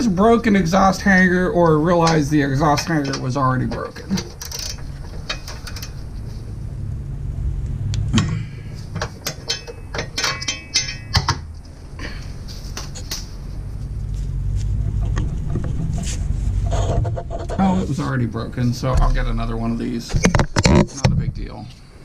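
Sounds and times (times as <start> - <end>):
steady low hum: 0.0 - 22.0
hand ratchet clicking: 4.2 - 6.0.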